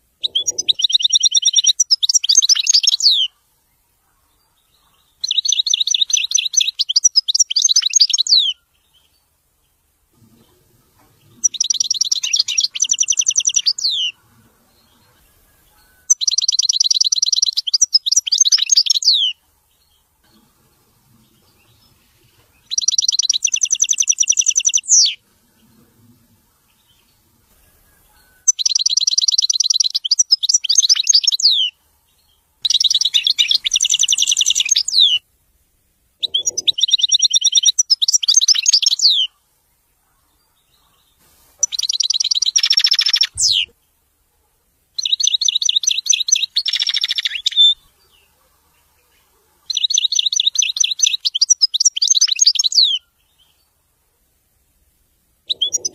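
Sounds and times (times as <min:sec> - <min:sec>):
goldfinch twittering song: 0:00.2 - 0:03.4, 0:04.3 - 0:09.2, 0:11.2 - 0:20.4, 0:21.2 - 0:25.7, 0:26.7 - 0:35.2, 0:36.2 - 0:39.3, 0:40.6 - 0:43.7, 0:45.0 - 0:48.3, 0:49.7 - 0:53.6, 0:55.5 - 0:55.9.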